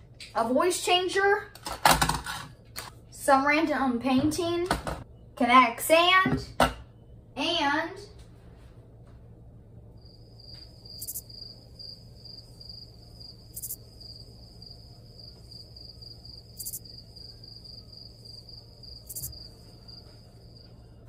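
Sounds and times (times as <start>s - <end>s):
cricket chirping: 10.0s - 21.0s.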